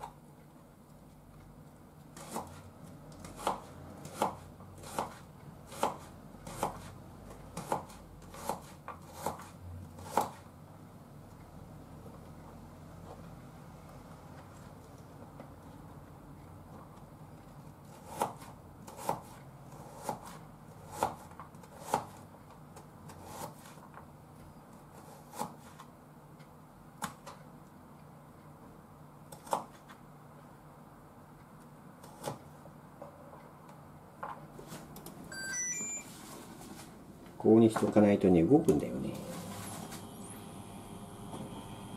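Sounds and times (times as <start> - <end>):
knife chopping on cutting board: 2.2 - 2.6, 3.2 - 6.9, 7.5 - 10.4, 17.9 - 22.2, 23.1 - 23.8, 24.9 - 25.9, 29.3 - 30.0, 32.0 - 32.4.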